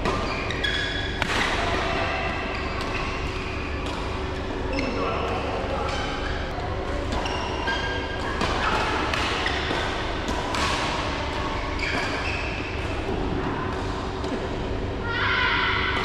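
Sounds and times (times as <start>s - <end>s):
shoes squeaking on court: 0.1s - 1.5s, 2.3s - 5.3s, 5.9s - 8.8s, 9.4s - 10.2s, 11.6s - 12.7s
racquets striking shuttlecock: 0.9s - 4.4s, 7.0s - 13.2s.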